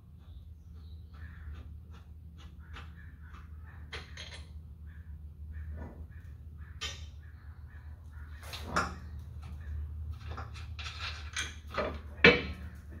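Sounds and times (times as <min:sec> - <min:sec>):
metal clanks and scrapes: 0:03.9 - 0:04.6, 0:08.4 - 0:13.0.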